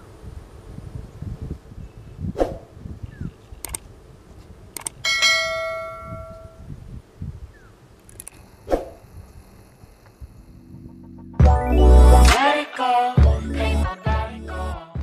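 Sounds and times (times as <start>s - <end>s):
clicks: 3.6s - 3.9s, 4.7s - 5.0s, 8.0s - 8.5s
bell chime: 5.1s - 6.6s
faint low rumble: 5.8s - 12.2s.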